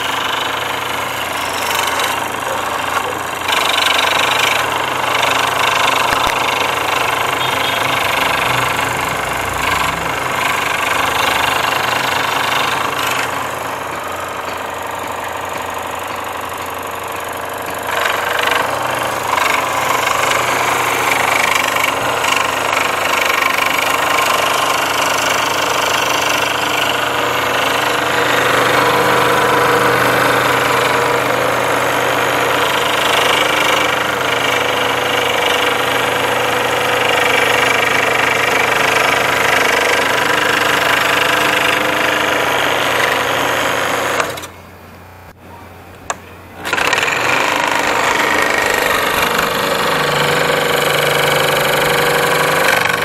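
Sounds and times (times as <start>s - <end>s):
scroll saw cutting plywood: 0.0s - 44.6s, 46.1s - 53.0s.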